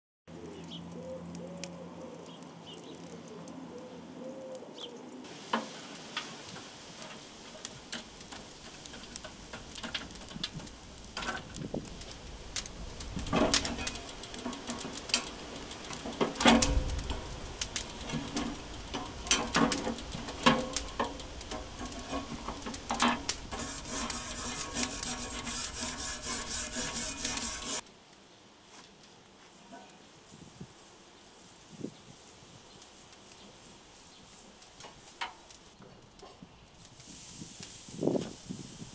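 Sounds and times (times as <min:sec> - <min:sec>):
sizzling hiss on hot grate: 0:05.2 - 0:27.8, 0:29.4 - 0:38.9
tool clinking on metal grill grate: 0:13.3 - 0:27.8.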